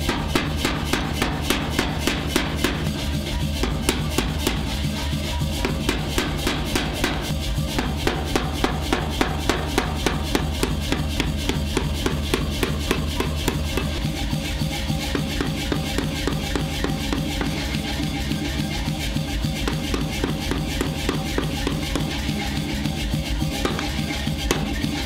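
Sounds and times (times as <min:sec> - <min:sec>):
power hammer striking steel: 0:00.0 - 0:03.0, 0:05.6 - 0:14.0, 0:23.6 - 0:24.9
music with drum beat: 0:00.0 - 0:25.0.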